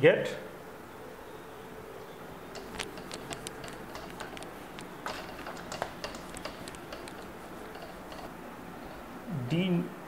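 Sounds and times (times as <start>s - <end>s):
marker tapping whiteboard: 2.6s - 8.4s.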